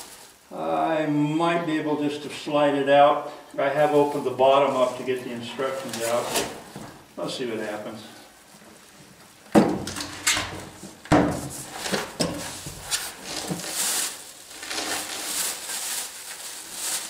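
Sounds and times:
plastic crinkling: 10.7s - 17.0s.

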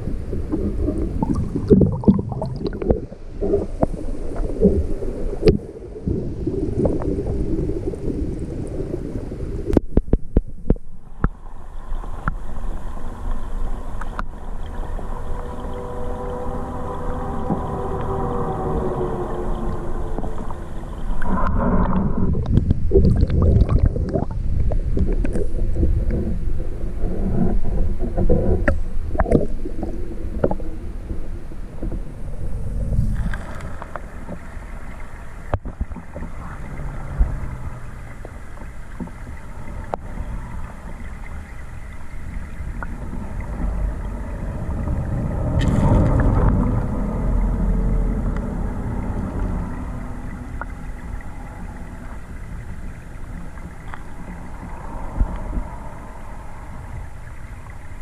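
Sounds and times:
muffled underwater stream rushing: 0.0s - 58.0s.

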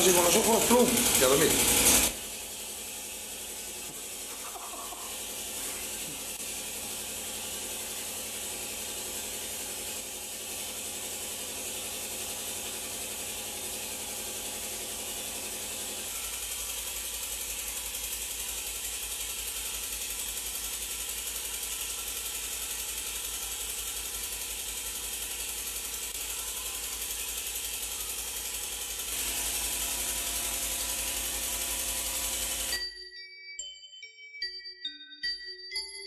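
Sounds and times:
voice: 0.0s - 1.6s.

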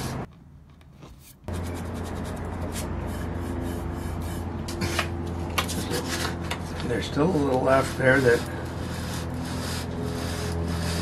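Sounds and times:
steady low hum: 1.4s - 11.0s
sandpaper rubbing on wood: 1.5s - 4.9s, 5.9s - 11.0s.

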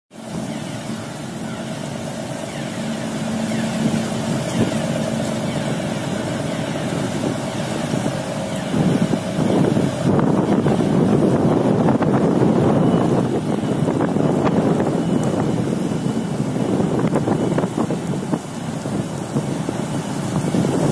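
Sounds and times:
propeller wash churning water: 0.1s - 20.9s
ship engine hum: 0.1s - 20.9s
wind buffeting microphone: 0.2s - 20.9s.

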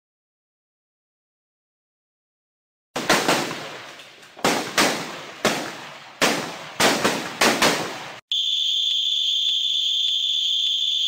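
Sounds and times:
rifle shots with echo: 3.0s - 8.2s
steady high whistle: 8.3s - 11.0s.

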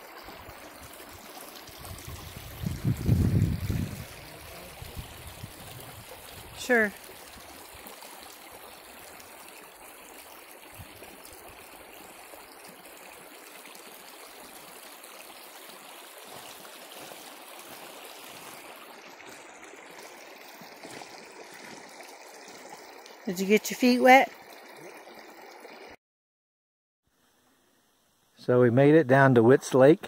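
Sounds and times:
stream trickling over stones: 0.0s - 26.0s
footsteps through water: 16.2s - 22.7s.

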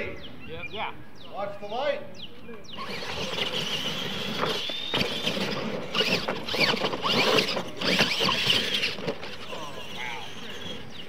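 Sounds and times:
rc truck motors whining: 2.7s - 11.0s.

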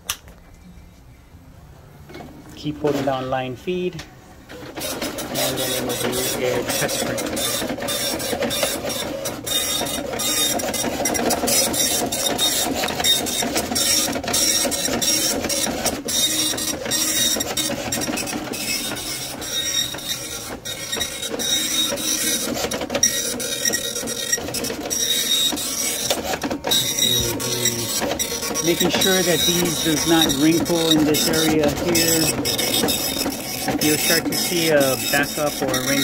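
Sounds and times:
dot-matrix printer head chattering: 4.8s - 36.0s.

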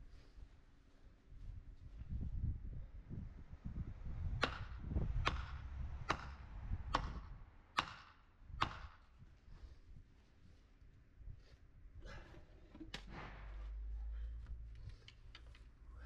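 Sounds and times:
hammer striking timber post: 4.4s - 9.0s.

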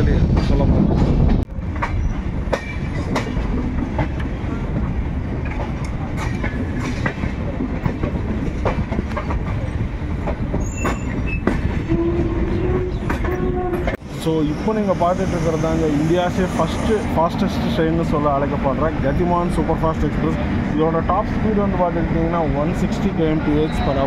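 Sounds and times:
train rumbling on track: 0.0s - 24.0s
wheels clattering over rail joints: 0.3s - 14.0s.

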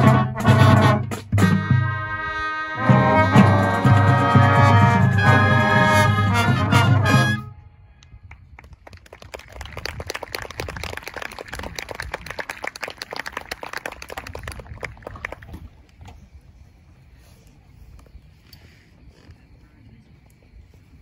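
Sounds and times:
brass band chord: 0.0s - 7.7s
audience applause: 8.5s - 15.9s.

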